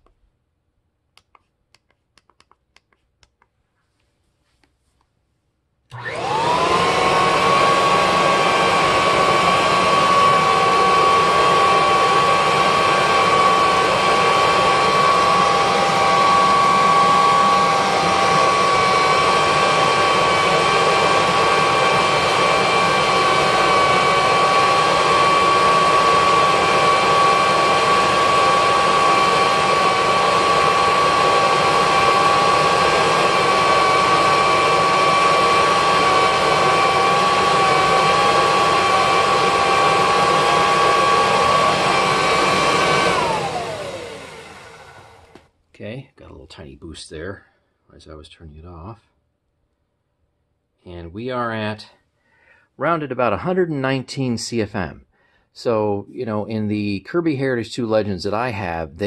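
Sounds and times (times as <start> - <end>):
upright vacuum whining: 5.9 - 45.5.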